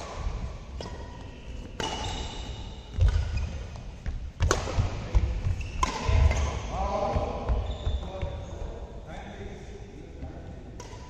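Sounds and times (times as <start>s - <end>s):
racquet hitting shuttlecock: 0.0s - 7.3s, 10.8s - 11.0s.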